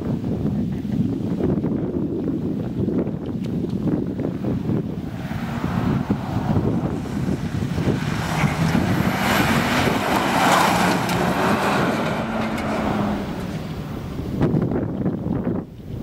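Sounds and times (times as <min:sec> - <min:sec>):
car engine revving: 0:04.2 - 0:15.1.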